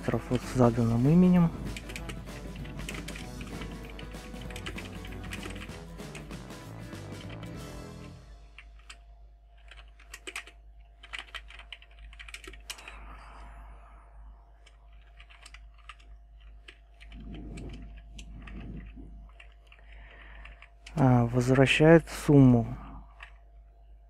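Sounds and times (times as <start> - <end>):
keyboard keystroke clicks: 15.0 - 16.1.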